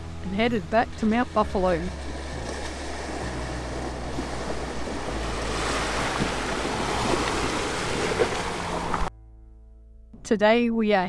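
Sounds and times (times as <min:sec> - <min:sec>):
low engine hum: 0:00.0 - 0:09.1
tyres splashing through water: 0:01.7 - 0:09.1.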